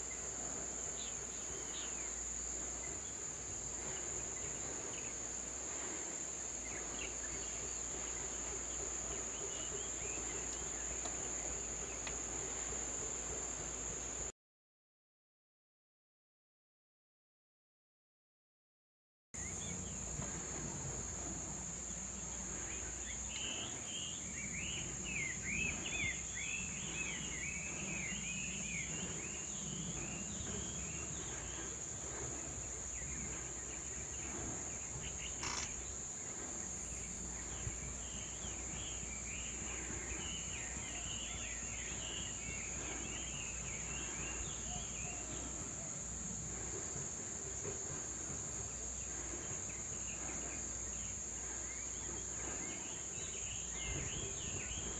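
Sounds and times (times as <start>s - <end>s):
high-pitched insect drone: 19.4s - 54.9s
chirping bird calls: 22.3s - 46.0s.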